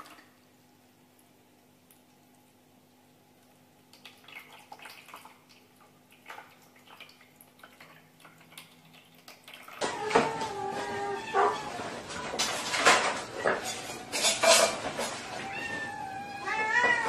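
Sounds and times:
faint water splashes and drips: 0.0s - 11.2s
cat lapping water: 1.2s - 10.0s.

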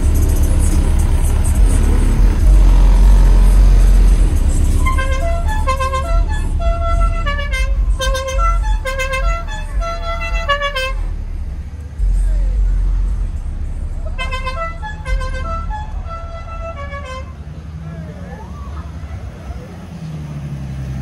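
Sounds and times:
musical car horn tune: 0.0s - 11.4s, 14.0s - 17.5s
heavy low rumble: 0.0s - 19.8s.

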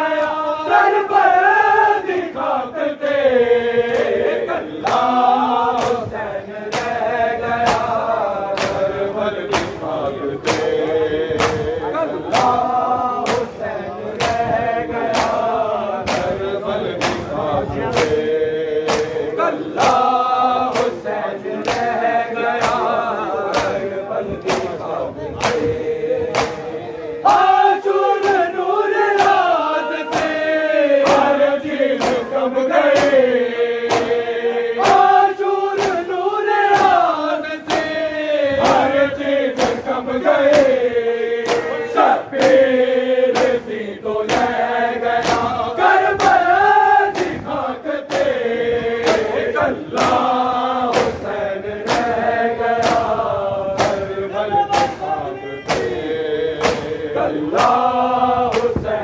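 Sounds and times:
men chanting in unison: 0.0s - 59.0s
hand slaps on chests: 4.8s - 38.0s, 38.6s - 42.7s, 43.3s - 48.4s, 49.0s - 59.0s.

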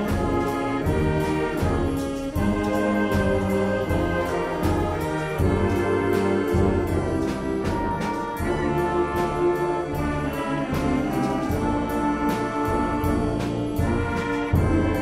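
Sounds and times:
concert band playing: 0.0s - 15.0s
percussion strokes: 0.0s - 15.0s.

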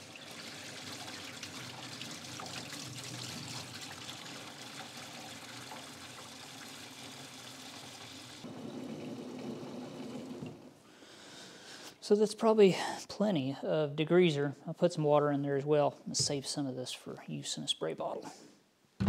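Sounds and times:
liquid pouring and splashing into tank: 0.0s - 10.8s.

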